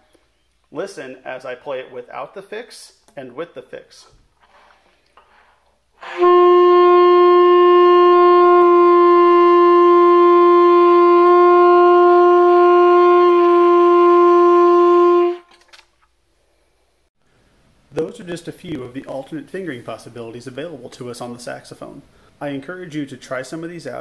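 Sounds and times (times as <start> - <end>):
alto saxophone long note: 6.0 - 15.5.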